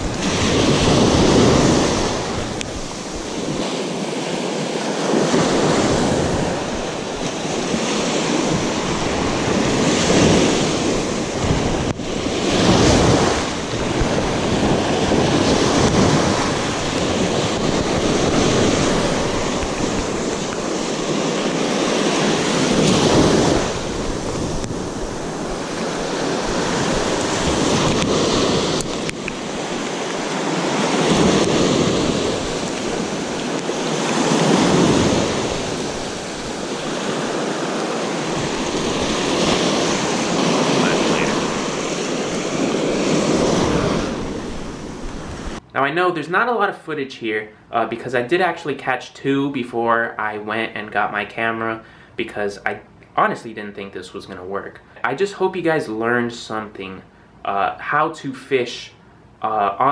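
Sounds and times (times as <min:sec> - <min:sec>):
wind buffeting microphone: 0:00.0 - 0:04.1, 0:04.9 - 0:45.7
surf washing on beach: 0:00.0 - 0:47.0.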